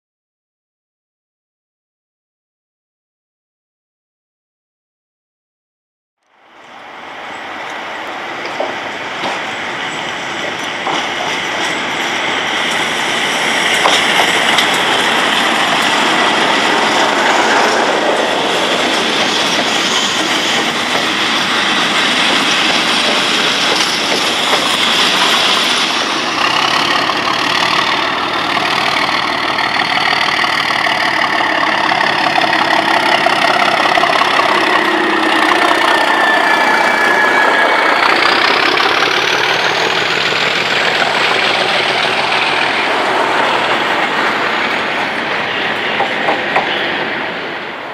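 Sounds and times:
diesel locomotive engines running: 6.2s - 47.9s
wheels clattering on rails: 7.4s - 47.6s.

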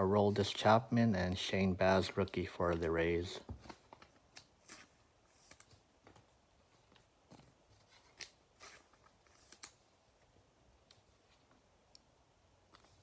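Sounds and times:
trading cards shuffling: 2.0s - 9.9s.

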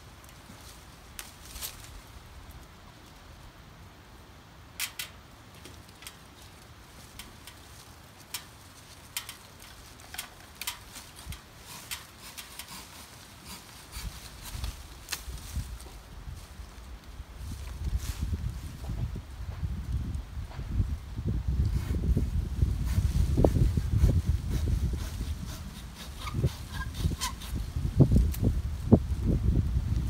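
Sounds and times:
branches and twigs snapping: 0.2s - 3.2s, 4.8s - 18.5s.

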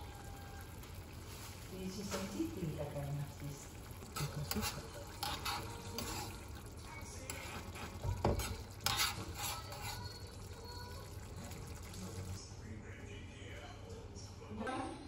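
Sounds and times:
metal spoon scraping pan: 4.1s - 6.6s, 7.2s - 10.4s.

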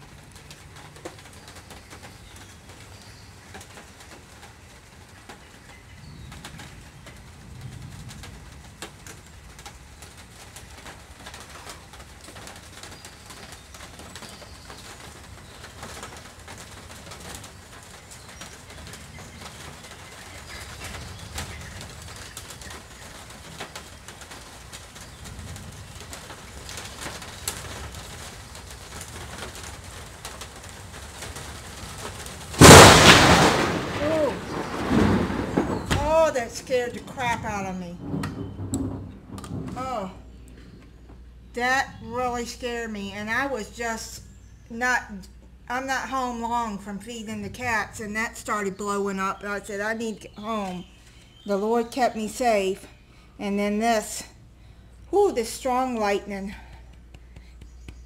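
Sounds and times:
faint low thunder rumbles: 4.5s - 42.8s
loud thunder crack: 32.5s - 40.4s.

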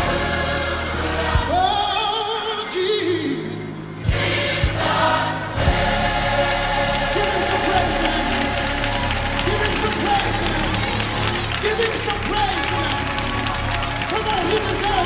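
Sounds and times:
gospel choir singing with band: 0.0s - 11.6s.

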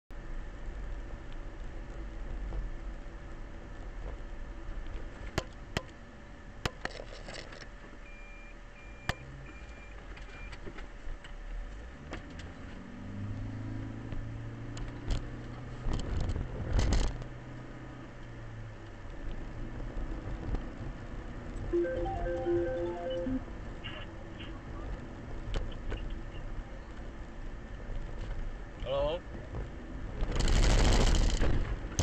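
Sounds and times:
road noise inside car: 0.1s - 32.0s
short high beeps: 21.8s - 23.4s.

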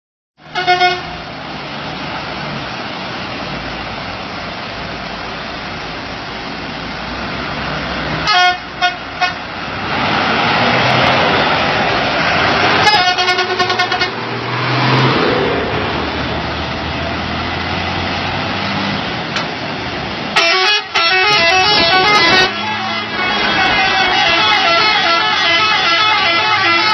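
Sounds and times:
truck horn blasts: 0.4s - 1.2s, 8.2s - 9.5s, 12.8s - 14.2s, 20.4s - 26.9s
truck engines passing on gravel: 1.0s - 25.4s.

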